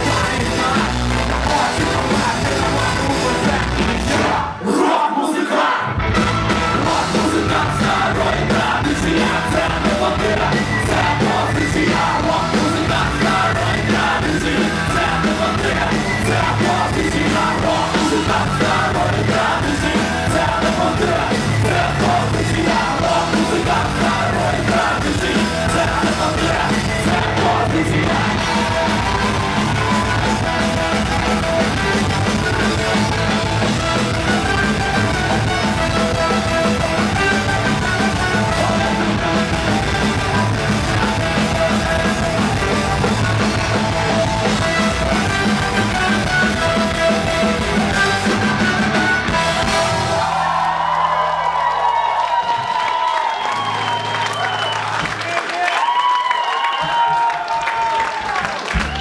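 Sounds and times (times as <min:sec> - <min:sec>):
drum kit: 0:00.0 - 0:04.6, 0:05.9 - 0:56.0, 0:58.2 - 0:59.0
person singing: 0:00.0 - 0:06.0, 0:06.7 - 0:49.7
electric guitar: 0:05.9 - 0:51.6.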